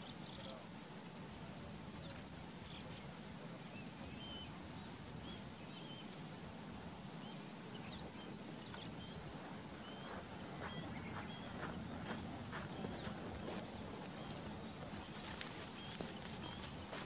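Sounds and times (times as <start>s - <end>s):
low outdoor background hum: 0.0s - 17.0s
birds chirping and whistling: 3.8s - 6.2s, 7.2s - 17.0s.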